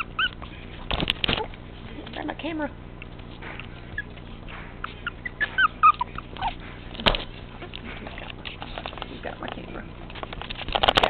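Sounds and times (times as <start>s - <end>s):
puppy yipping and whimpering: 0.0s - 0.6s, 3.8s - 4.2s, 4.8s - 6.6s.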